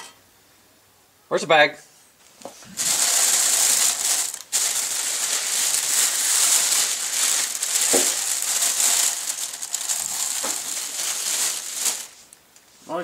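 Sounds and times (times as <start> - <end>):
plastic bag crinkling: 2.6 - 12.5.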